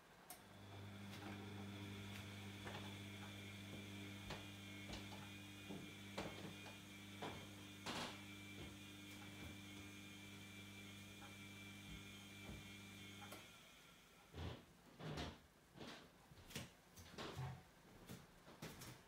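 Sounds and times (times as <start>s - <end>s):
washing machine humming: 0.0s - 15.3s.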